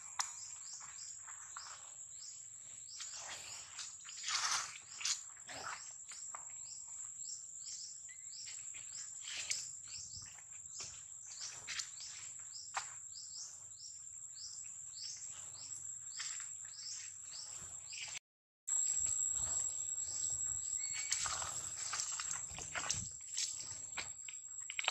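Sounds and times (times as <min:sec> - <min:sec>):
high-pitched insect drone: 0:15.4 - 0:24.1.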